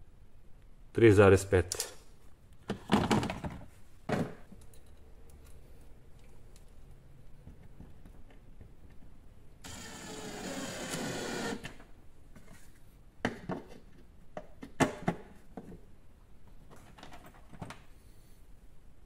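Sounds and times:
cordless drill motor whining: 0:09.6 - 0:11.7.

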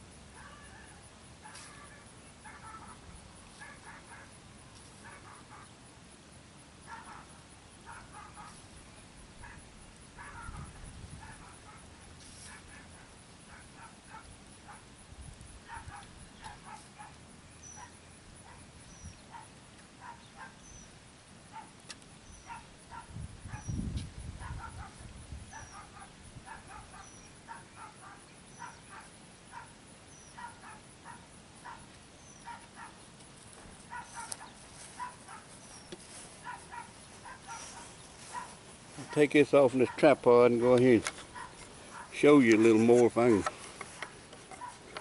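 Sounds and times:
dog barking faintly: 0:00.4 - 0:04.3, 0:05.0 - 0:05.7, 0:06.9 - 0:08.6, 0:10.2 - 0:14.8, 0:15.7 - 0:17.2, 0:24.4 - 0:33.0, 0:33.9 - 0:35.7, 0:36.4 - 0:43.5.

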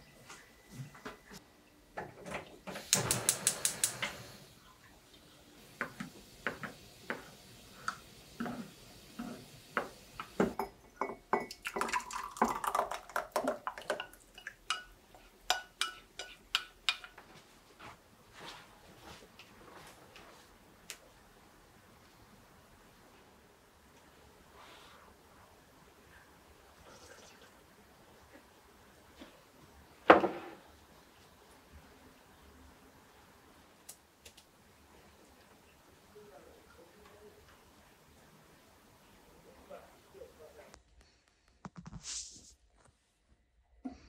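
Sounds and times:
metal spoon clinking on ceramic: 0:14.0 - 0:14.9, 0:15.5 - 0:17.1.

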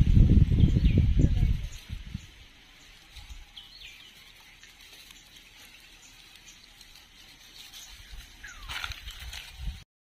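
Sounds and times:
patter and rustle in dry leaves: 0:00.0 - 0:09.9.

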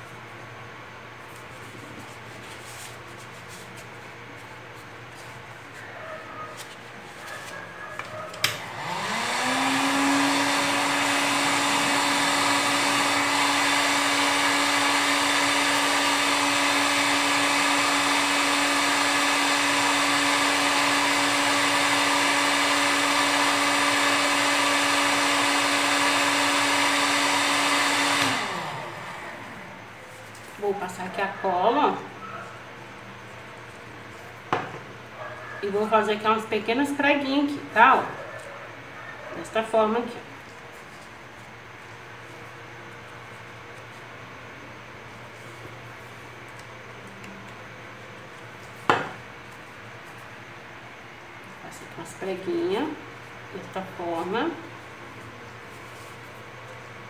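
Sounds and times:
heat gun fan humming: 0:07.7 - 0:30.8.

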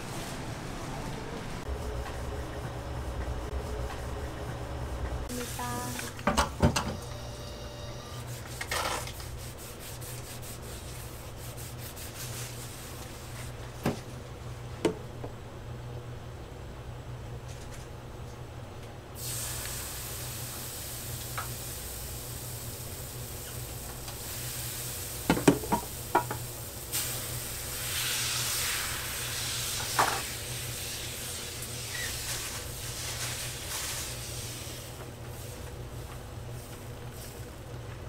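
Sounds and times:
batter sizzling on griddle: 0:19.2 - 0:25.3, 0:25.9 - 0:35.5.

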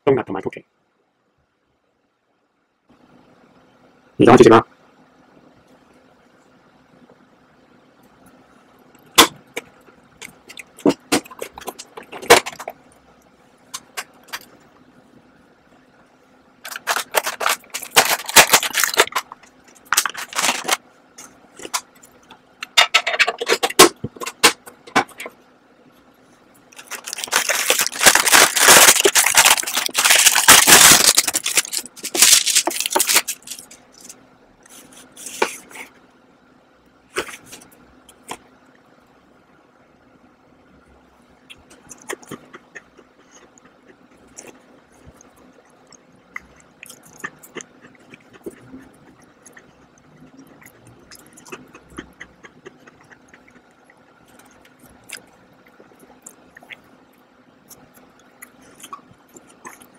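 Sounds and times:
scraping rattling and crinkling: 0:16.7 - 0:20.8, 0:26.7 - 0:34.2.

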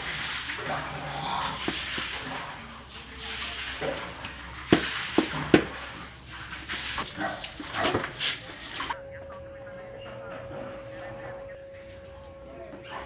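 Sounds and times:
water splashing in basin: 0:00.0 - 0:09.0.

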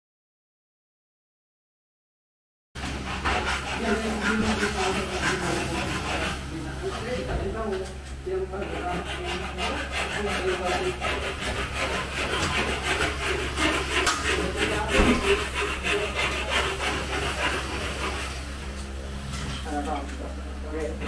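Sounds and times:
hand tool rasping strokes: 0:03.0 - 0:06.4, 0:08.6 - 0:18.4
loud knock: 0:14.9 - 0:15.4.

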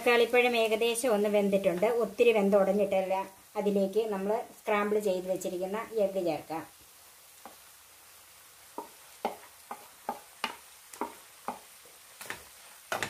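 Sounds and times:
faint sizzle of frying: 0:00.0 - 0:13.0.

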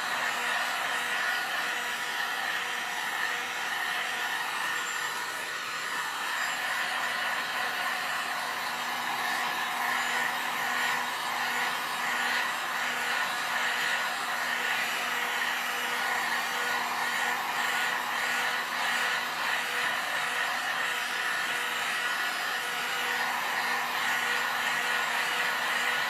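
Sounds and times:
heat gun blowing air: 0:00.0 - 0:26.0.

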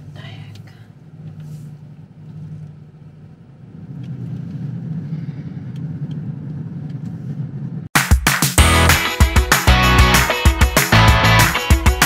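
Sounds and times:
car engine and road noise: 0:00.0 - 0:07.9.

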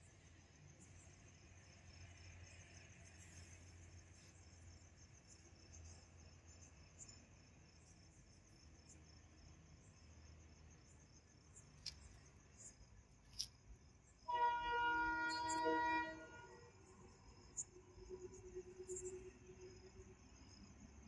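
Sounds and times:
crickets chirping: 0:00.0 - 0:21.0
train horn blast: 0:14.3 - 0:16.7.

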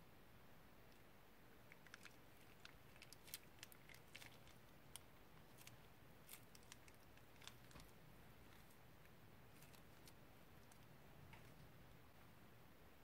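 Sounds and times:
slime squelching: 0:01.6 - 0:11.8.

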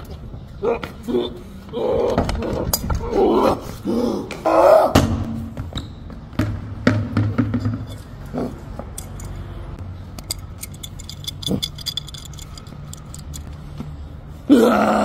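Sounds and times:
metal wrench clinking: 0:07.6 - 0:13.5
metallic clicks: 0:10.1 - 0:13.6.

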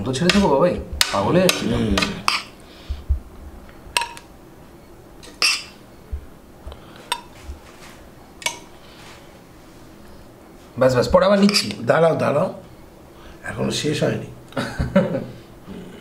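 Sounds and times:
metal spoon clinking against pot: 0:02.2 - 0:02.5, 0:04.0 - 0:04.2, 0:05.3 - 0:05.8, 0:11.4 - 0:11.8.

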